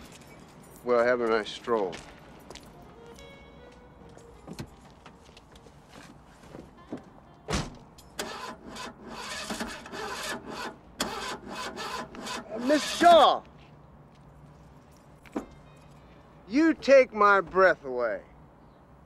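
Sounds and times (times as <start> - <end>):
car door shutting: 7.5 - 8.4
car engine cranking and starting: 8.2 - 13.2.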